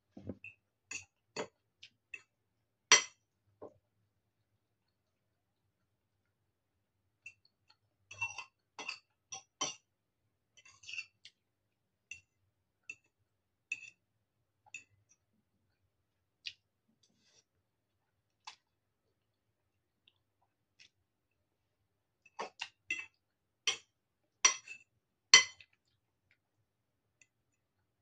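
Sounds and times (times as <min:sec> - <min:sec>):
fork scraping ceramic bowl: 0:10.6 - 0:11.3.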